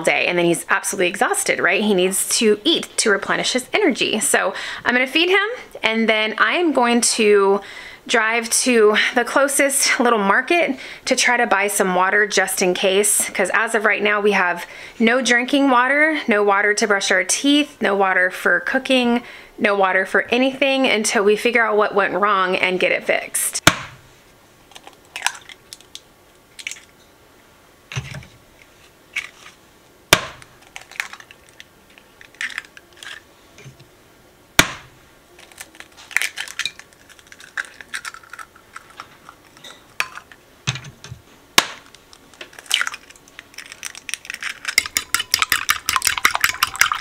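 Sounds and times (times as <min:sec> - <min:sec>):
eggs cracked on bowl rim: 0:24.8 - 0:26.0, 0:35.5 - 0:40.4, 0:41.6 - 0:47.0
fork beating eggs in bowl: 0:43.6 - 0:47.0.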